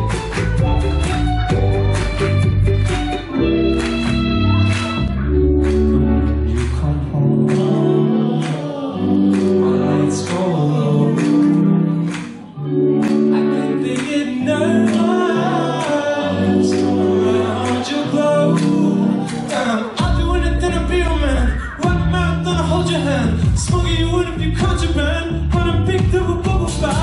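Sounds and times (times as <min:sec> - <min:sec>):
drums beating: 0:00.0 - 0:03.2, 0:20.0 - 0:20.4, 0:21.8 - 0:22.3, 0:23.4 - 0:27.0
live pop band playing: 0:00.0 - 0:27.0
person singing: 0:00.0 - 0:27.0.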